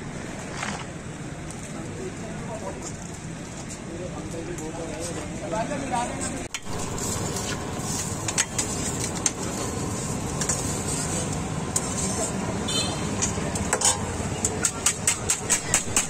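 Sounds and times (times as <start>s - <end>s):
busy street-food stall: 0.0s - 16.0s
steel utensils clinking on bowls: 13.2s - 15.7s.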